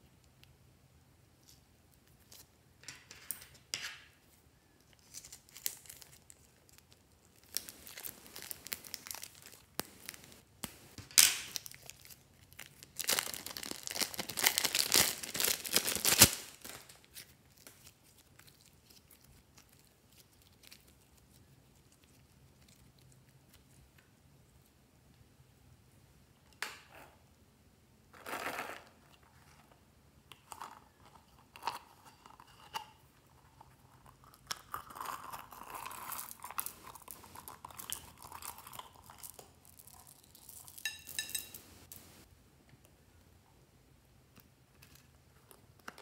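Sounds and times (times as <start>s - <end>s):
plastic bag crinkling: 5.0s - 18.2s, 35.4s - 42.2s.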